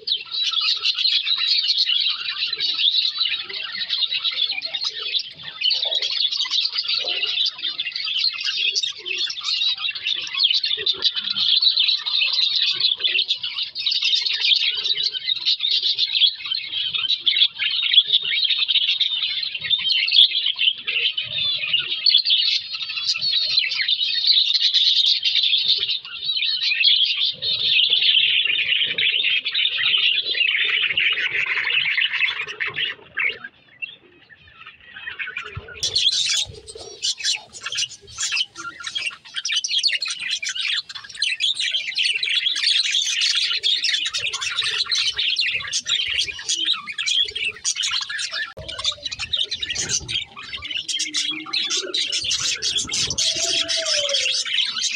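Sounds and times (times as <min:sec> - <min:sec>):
budgerigars chattering: 0:34.6 - 0:54.9.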